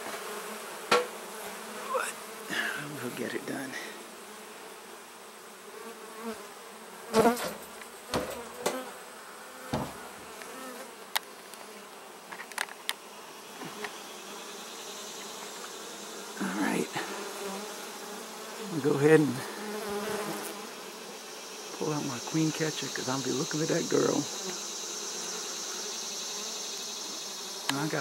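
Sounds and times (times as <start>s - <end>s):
honey bees buzzing: 0.0s - 28.0s
sharp knocks and clicks: 0.9s - 1.2s, 7.2s - 8.8s, 9.7s - 10.1s.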